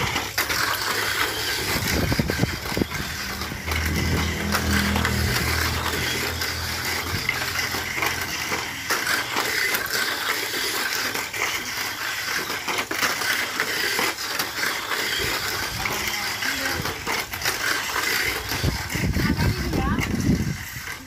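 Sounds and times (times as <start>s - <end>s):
toy cars buzzing clatter on track: 0.0s - 21.0s
low engine hum: 1.2s - 10.4s.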